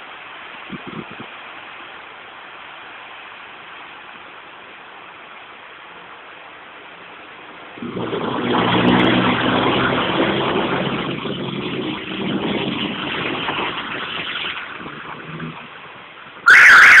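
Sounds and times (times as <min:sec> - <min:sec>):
wheels spraying water: 0:00.0 - 0:17.0
loud high-pitched sound: 0:16.5 - 0:17.0.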